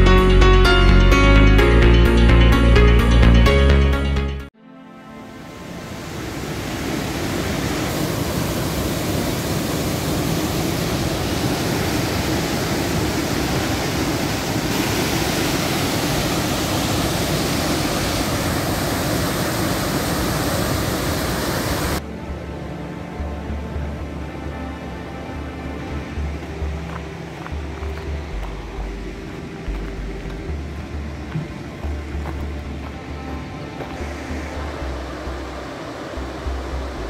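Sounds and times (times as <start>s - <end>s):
waterfall rushing: 5.2s - 22.0s, 22.6s - 37.0s.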